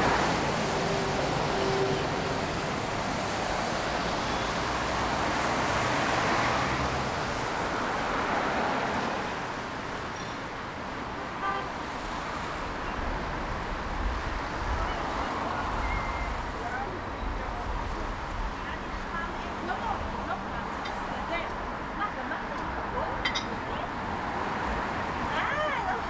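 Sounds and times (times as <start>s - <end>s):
tyres hissing on wet asphalt: 0.0s - 21.8s
car horn toot: 1.0s - 2.3s.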